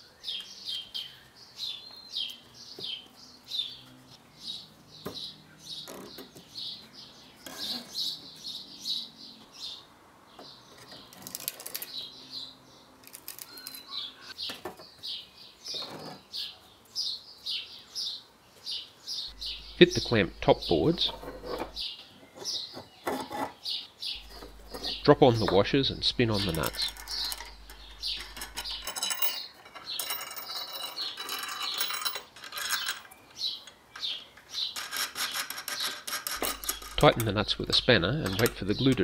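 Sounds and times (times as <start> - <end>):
small birds chirping: 0.0 - 32.0, 32.7 - 39.0
board scraping: 20.6 - 21.8.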